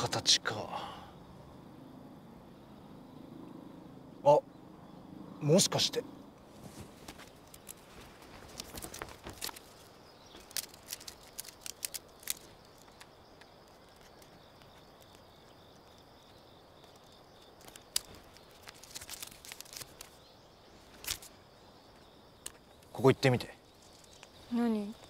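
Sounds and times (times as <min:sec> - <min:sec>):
pulsing insect trill: 0:00.0 - 0:06.5, 0:07.2 - 0:25.0
small clicks and scuffs: 0:06.5 - 0:20.2, 0:20.9 - 0:21.3.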